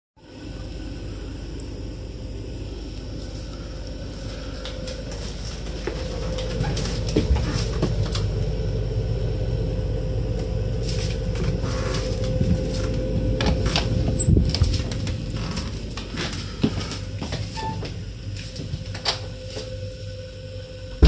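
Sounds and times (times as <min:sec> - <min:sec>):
steady low hum: 0:00.2 - 0:21.0.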